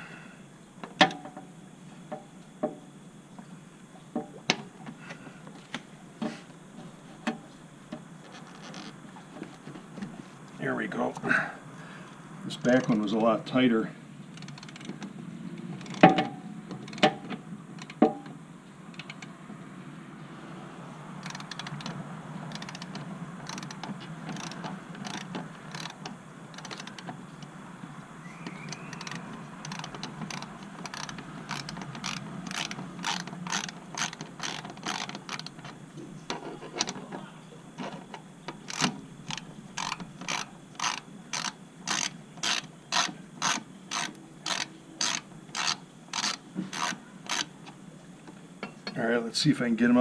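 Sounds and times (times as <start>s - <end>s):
ratchet clicking: 14.3s - 15.0s, 18.9s - 19.3s, 21.2s - 27.5s, 28.4s - 35.8s, 38.5s - 47.5s.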